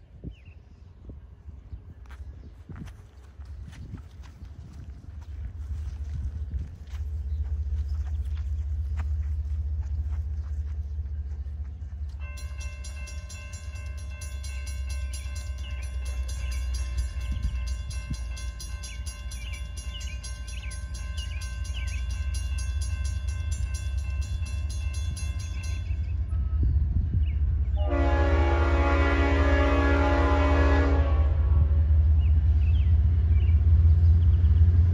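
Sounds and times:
low rumble: 0.6s - 14.4s
crossing warning bell ringing: 11.5s - 26.9s
locomotive horn: 27.7s - 32.0s.

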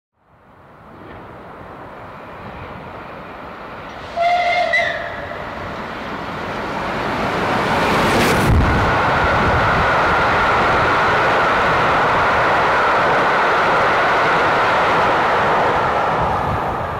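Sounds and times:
steam locomotive approaching: 0.7s - 16.9s
train whistle blast: 4.0s - 5.4s.

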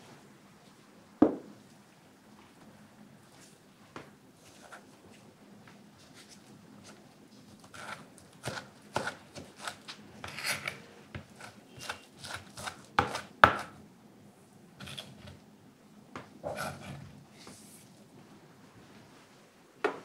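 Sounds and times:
knife chopping on cutting board: 11.2s - 13.8s.

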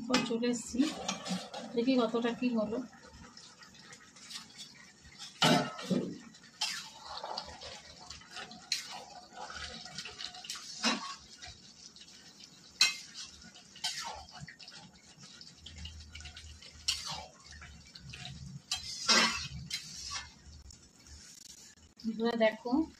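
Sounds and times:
spoon stirring liquid: 2.9s - 20.6s.

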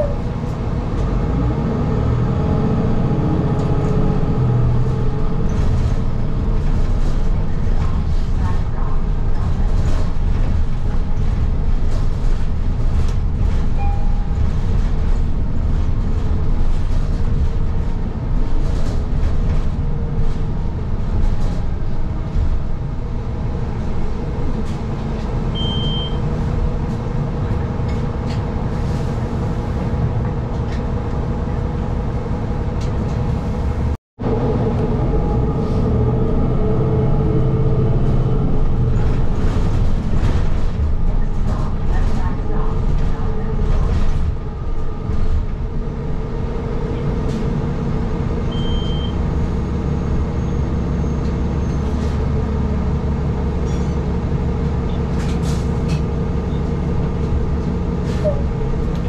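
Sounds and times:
bus engine and road rumble: 0.0s - 59.0s
short faint beeps: 13.8s - 14.2s, 25.6s - 26.2s.

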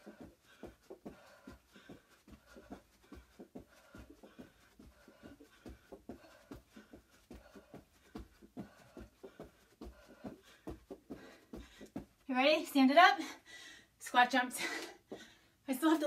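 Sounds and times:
soft thuds of feet and hands on rug: 0.0s - 12.3s.

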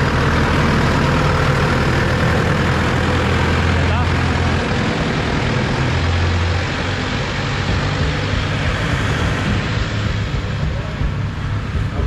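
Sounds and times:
engine humming: 0.0s - 12.0s
steady mechanical noise: 0.0s - 12.0s.

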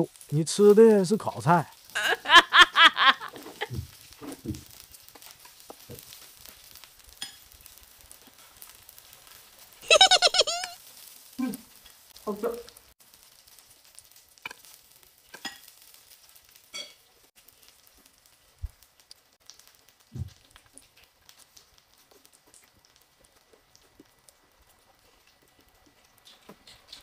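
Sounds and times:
food sizzling on grill pan: 0.0s - 27.0s
chewing and crunching: 20.2s - 27.0s.

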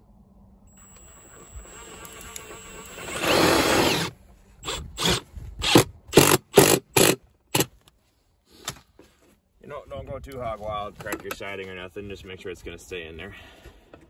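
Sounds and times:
cordless drill driving a screw: 0.7s - 7.2s.

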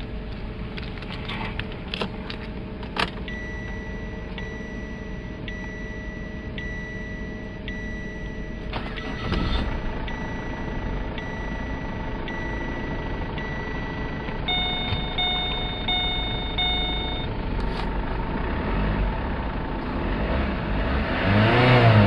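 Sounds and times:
dashboard warning chime: 3.2s - 17.4s
starter cranking engine: 8.7s - 9.8s
ignition key click: 14.2s - 17.3s.

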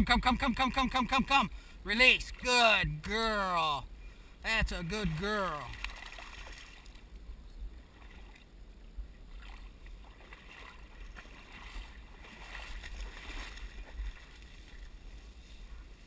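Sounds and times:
water sloshing: 5.0s - 7.1s, 7.8s - 8.6s, 9.2s - 15.3s.

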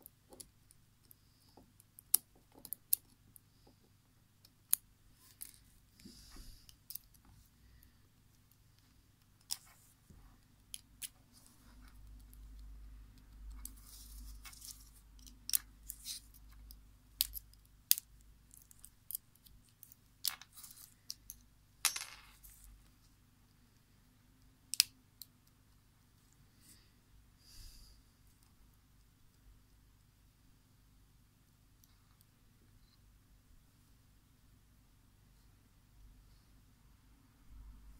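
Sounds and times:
soft handling noise: 5.1s - 12.6s, 13.5s - 16.7s.

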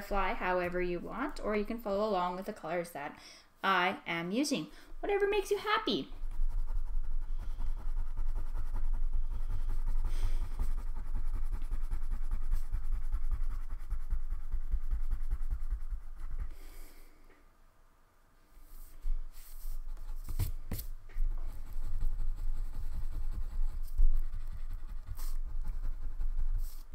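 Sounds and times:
crayon rubbing on paper: 5.1s - 16.9s, 18.6s - 26.9s.

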